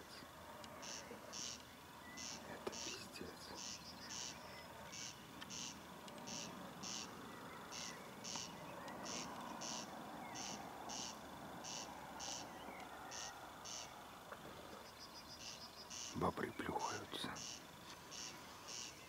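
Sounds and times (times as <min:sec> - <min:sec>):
faint outdoor hiss: 0:00.0 - 0:19.0
animal rasping chirp: 0:00.8 - 0:12.5, 0:13.1 - 0:13.9, 0:17.4 - 0:19.0.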